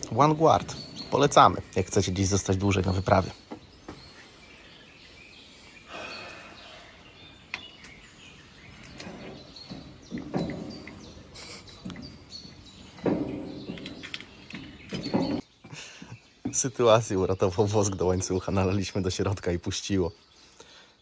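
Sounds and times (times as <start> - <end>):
birds chirping: 0.0 - 21.0
bike lock clicking and rattling: 7.5 - 15.4.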